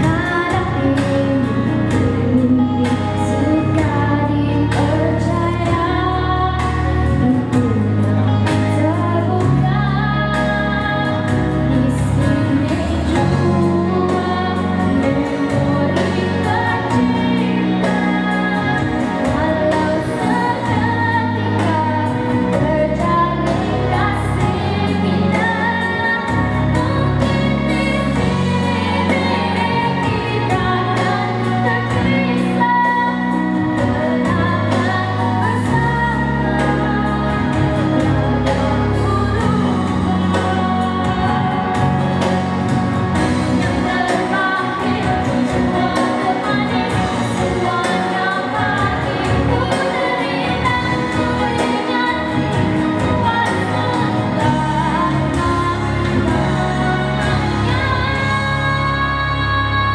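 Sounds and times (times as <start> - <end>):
girl singing into a microphone: 0.0 - 42.0, 43.5 - 59.9
pop accompaniment with beat: 0.0 - 59.9.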